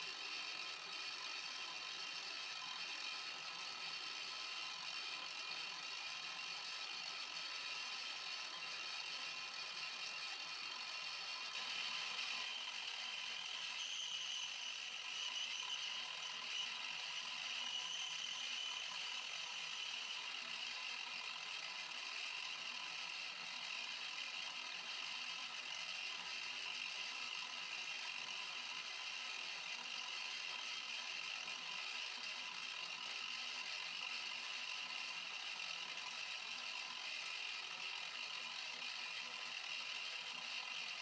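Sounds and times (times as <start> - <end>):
milling machine whining: 11.5 - 20.6.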